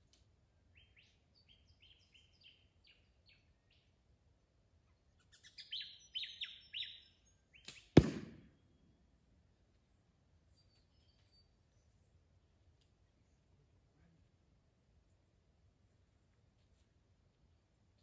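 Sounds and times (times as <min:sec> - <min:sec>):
arrow striking target: 0:07.7 - 0:08.5.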